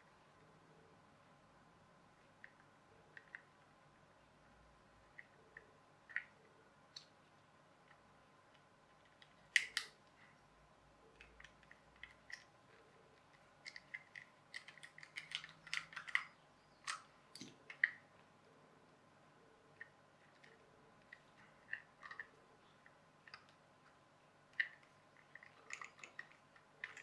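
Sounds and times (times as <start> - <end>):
small plastic clicks and taps: 7.8 - 10.0, 13.2 - 18.0.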